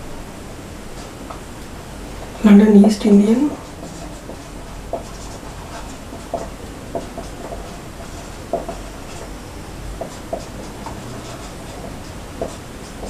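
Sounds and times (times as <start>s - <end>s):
marker writing on whiteboard: 2.2s - 13.0s.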